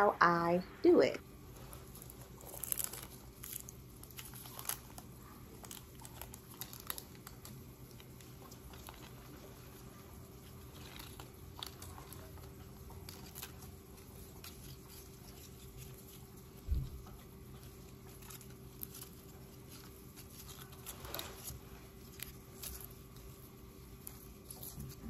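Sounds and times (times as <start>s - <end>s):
low steady hum: 0.0s - 25.0s
crinkling paper: 1.4s - 25.0s.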